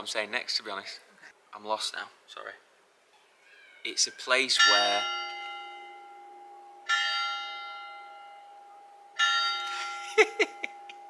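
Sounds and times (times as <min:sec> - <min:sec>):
church bell tolling: 0:04.5 - 0:11.0.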